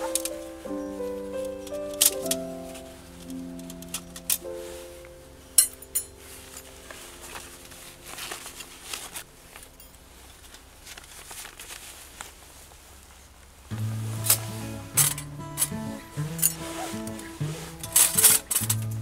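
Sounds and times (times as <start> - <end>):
background music: 0.0 - 9.0, 13.7 - 19.0
fabric pouch rustling: 5.6 - 18.8
metal plates scraping: 13.8 - 19.0.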